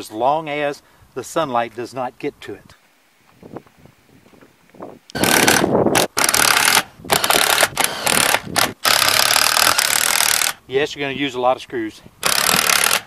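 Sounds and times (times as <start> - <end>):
drill driving screws into metal: 5.1 - 10.6, 12.2 - 13.0.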